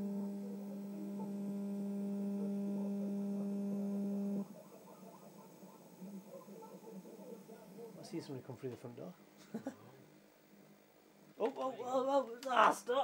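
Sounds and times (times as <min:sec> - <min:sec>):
faint crackle: 0:00.0 - 0:08.0
low electrical hum: 0:00.0 - 0:13.0.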